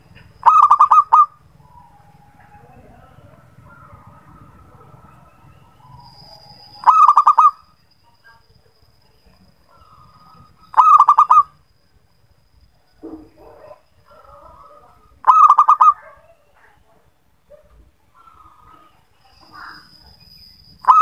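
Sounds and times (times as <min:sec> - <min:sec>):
faint steady high tone: 0:00.0 - 0:21.0
soft dove calls: 0:00.2 - 0:07.6, 0:09.7 - 0:11.5, 0:13.5 - 0:16.5
dove fast staccato cooing: 0:00.4 - 0:07.6, 0:10.7 - 0:11.5, 0:13.4 - 0:16.2.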